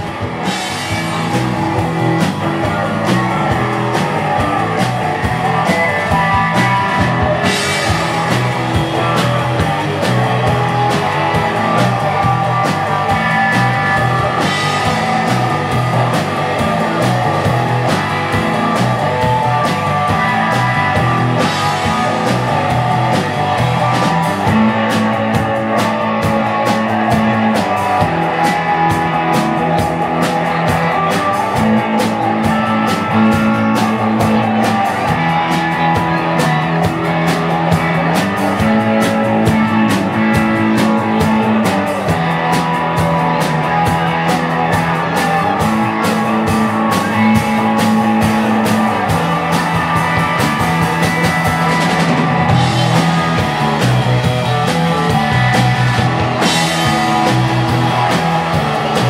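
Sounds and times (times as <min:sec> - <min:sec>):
live rock band playing: 0:00.0 - 0:59.0.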